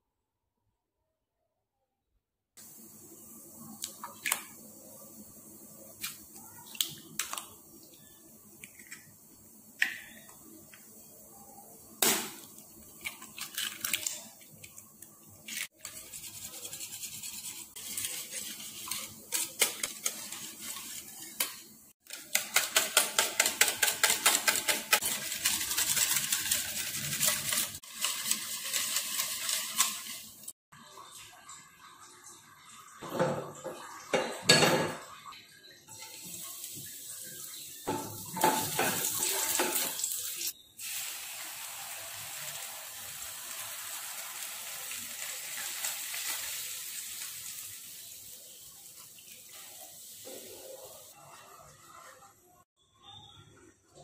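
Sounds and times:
whisk clicking against steel bowl: 0:22.1 - 0:30.2.

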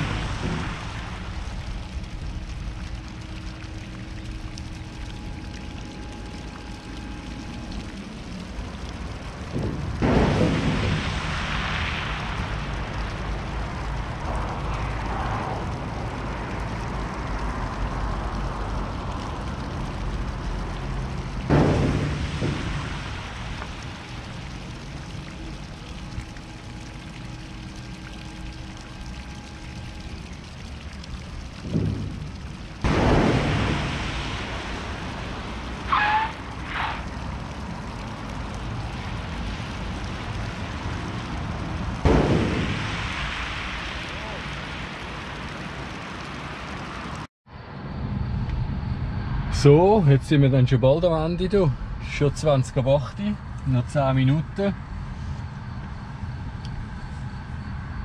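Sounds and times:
tyres hissing through water spray: 0:00.0 - 0:03.0, 0:07.0 - 0:30.8, 0:31.6 - 0:47.3
steady low rumble: 0:00.0 - 0:58.0.

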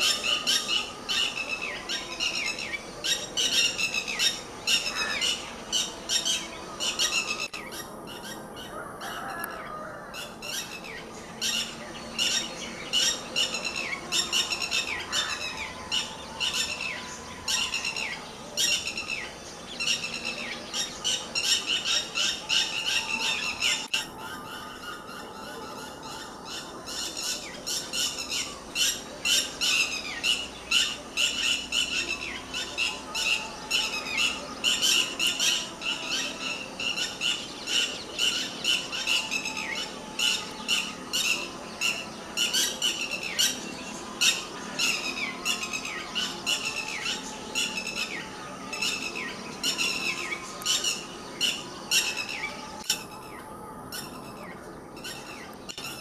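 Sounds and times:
lapwing shrill alarm calls: 0:00.0 - 0:43.6.

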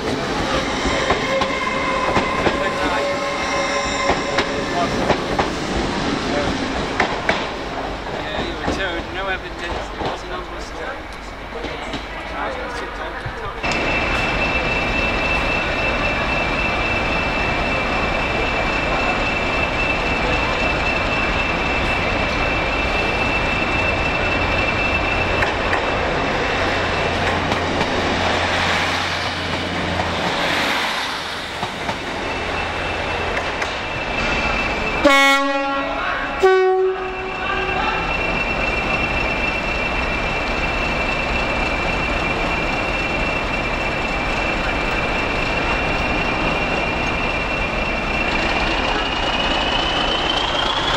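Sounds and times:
train rumbling: 0:00.0 - 0:50.9
two-tone train horn: 0:35.0 - 0:38.0.

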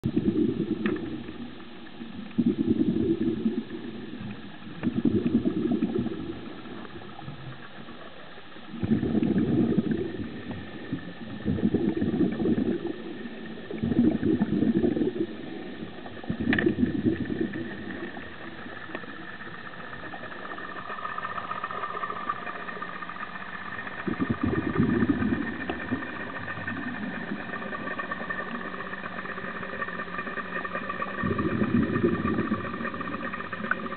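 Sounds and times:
boat engine hum underwater: 0:00.0 - 0:33.9
low underwater whooshing pulses: 0:00.0 - 0:33.9.

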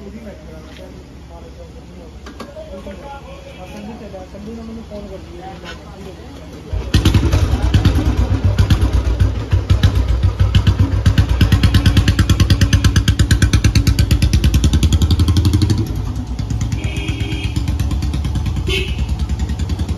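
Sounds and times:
single-cylinder motorcycle engine: 0:06.7 - 0:19.9.

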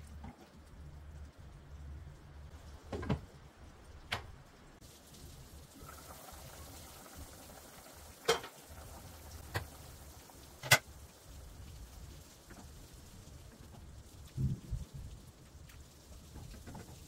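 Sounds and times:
stew bubbling: 0:04.8 - 0:17.0.

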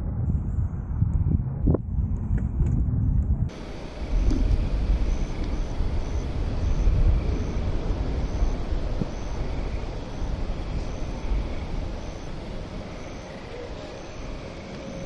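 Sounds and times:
wind buffeting microphone: 0:00.0 - 0:15.0
faint high chirp: 0:03.5 - 0:15.0.

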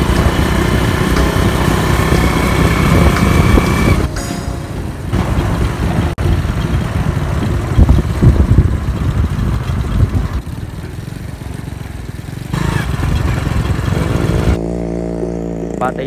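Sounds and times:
motorcycle engine running: 0:00.0 - 0:16.0
wind rumble on microphone: 0:05.2 - 0:10.6.

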